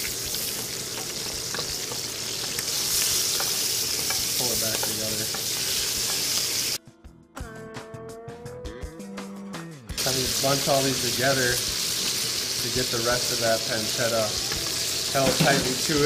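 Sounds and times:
food sizzling in a frying pan: 0:00.0 - 0:06.8, 0:10.0 - 0:16.0.

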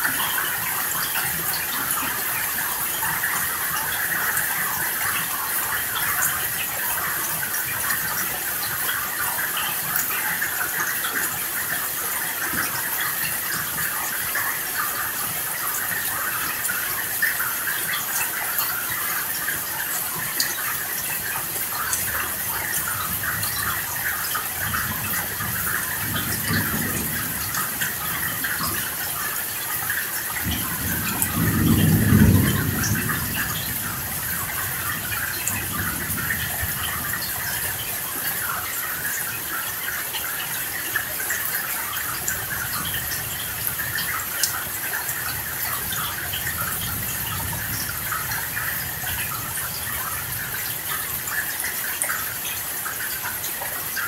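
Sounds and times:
steady rain falling: 0:00.0 - 0:54.0
thunder rumble: 0:30.4 - 0:37.3.

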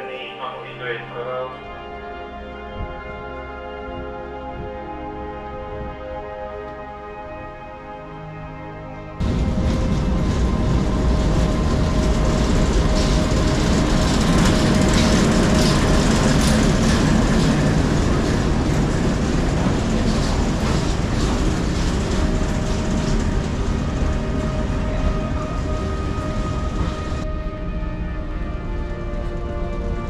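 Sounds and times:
wheels clicking on rail joints: 0:09.2 - 0:27.3
diesel locomotive rumbling past: 0:09.2 - 0:30.0.

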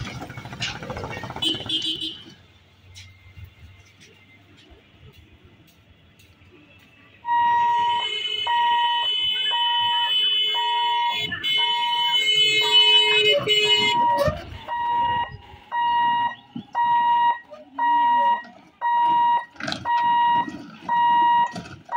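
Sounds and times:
level-crossing alarm beeping: 0:07.2 - 0:21.9.

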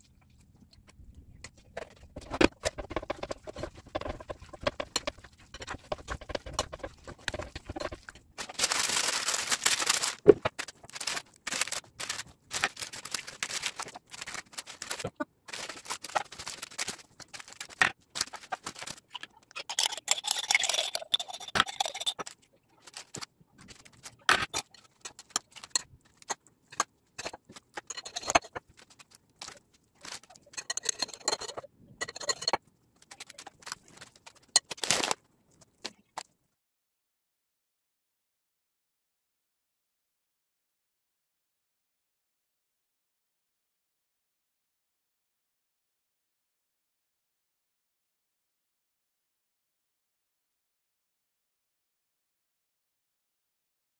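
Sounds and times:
metal spoon scraping a bowl: 0:01.7 - 0:08.5, 0:19.6 - 0:22.3, 0:24.4 - 0:28.7, 0:30.0 - 0:32.6
spoon clicks and taps: 0:19.5 - 0:22.3, 0:30.5 - 0:32.6.

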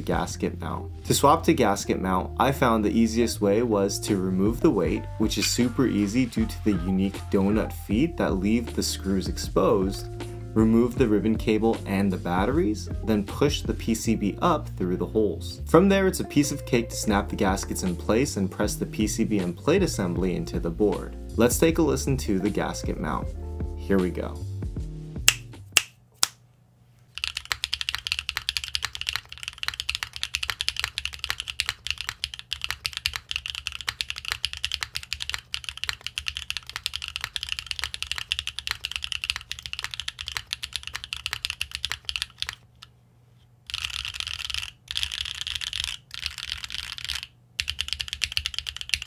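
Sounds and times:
mechanical keyboard typing: 0:27.2 - 0:42.6, 0:43.7 - 0:49.0.

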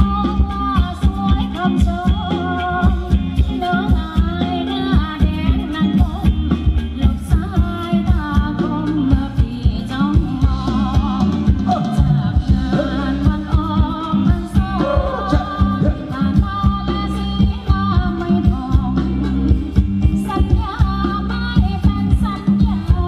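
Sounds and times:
heavy bass: 0:00.0 - 0:23.0
steady drum beat: 0:00.0 - 0:23.0
person singing: 0:07.0 - 0:23.0.

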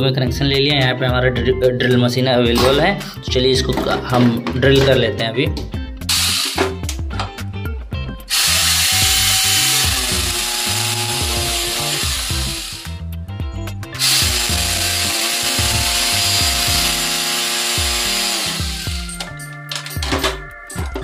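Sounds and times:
electric drill boring into wall: 0:06.1 - 0:06.6, 0:08.3 - 0:12.9, 0:14.0 - 0:19.2.

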